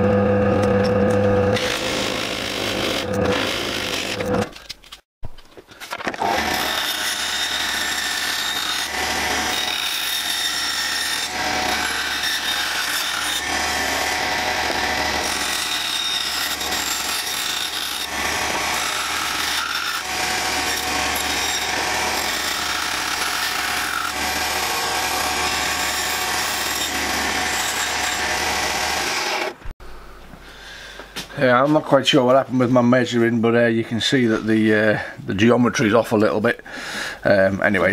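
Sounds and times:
bandsaw cutting plywood: 0:00.0 - 0:04.6, 0:06.1 - 0:29.7.

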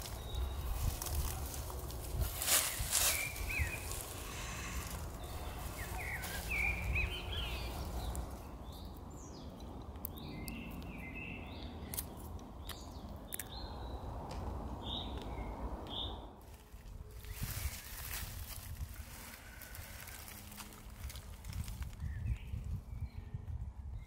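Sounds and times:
cloth and dry leaves rustling: 0:00.0 - 0:08.7, 0:16.4 - 0:23.0
low background rumble: 0:00.0 - 0:24.0
songbirds chirping: 0:00.0 - 0:24.0.

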